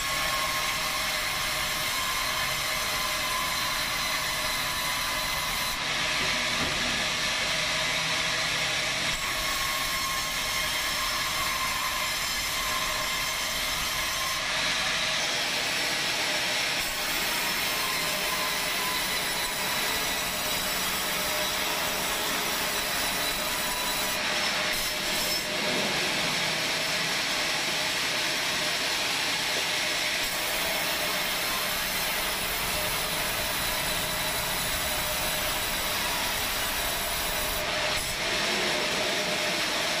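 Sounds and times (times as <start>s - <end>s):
band saw sawing timber: 0.0s - 7.4s, 16.8s - 25.9s, 30.1s - 40.0s.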